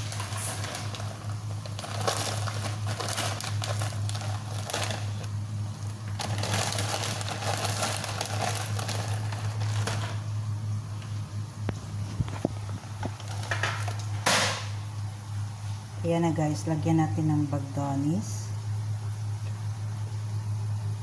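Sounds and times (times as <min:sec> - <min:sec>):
rustling and crinkling: 0:00.0 - 0:10.3, 0:11.0 - 0:14.7
steady low hum: 0:00.0 - 0:21.0.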